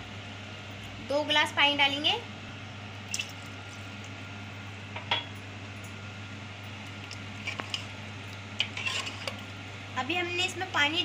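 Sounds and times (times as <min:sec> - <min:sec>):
metal ladle stirring: 0:08.6 - 0:09.4.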